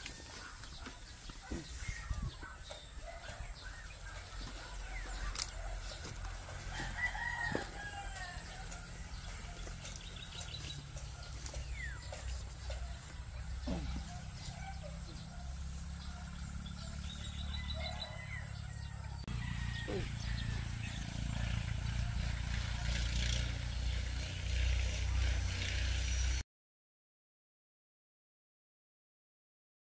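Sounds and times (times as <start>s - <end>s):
outdoor background noise: 0.0s - 26.4s
rooster crowing: 4.8s - 12.1s, 13.7s - 22.9s.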